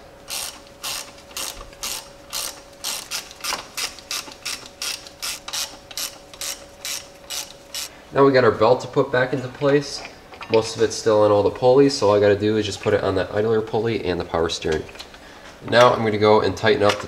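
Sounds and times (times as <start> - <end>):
socket ratchet clicking: 0.3 - 7.9.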